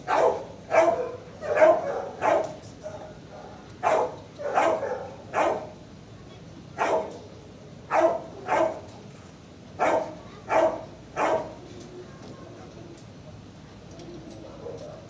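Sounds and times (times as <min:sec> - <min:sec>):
dog barking: 0:00.0 - 0:05.8, 0:06.8 - 0:07.2, 0:07.9 - 0:08.9, 0:09.8 - 0:11.6, 0:14.5 - 0:15.0.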